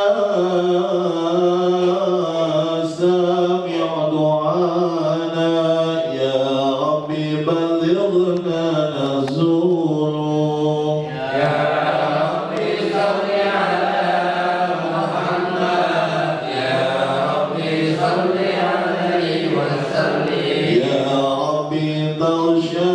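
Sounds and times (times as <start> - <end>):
man chanting into a microphone: 0.0 - 12.5, 20.7 - 22.9.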